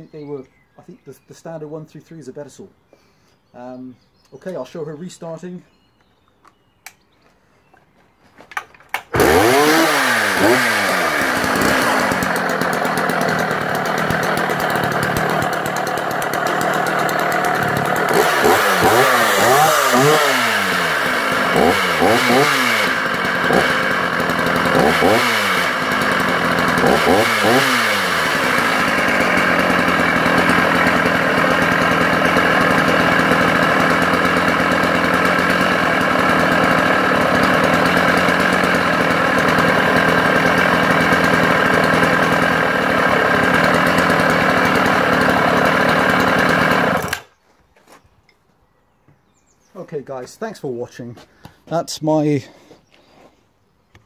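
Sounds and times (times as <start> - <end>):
chainsaw engine revving and idling: 8.9 - 47.3.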